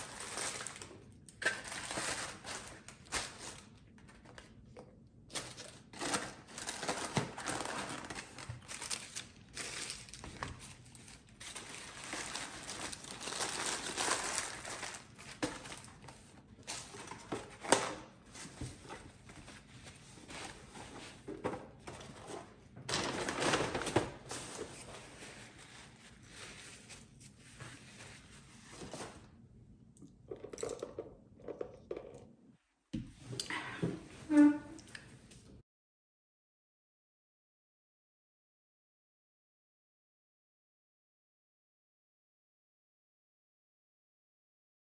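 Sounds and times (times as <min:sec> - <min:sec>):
paper liners crinkling: 0:00.0 - 0:04.5, 0:05.3 - 0:17.7.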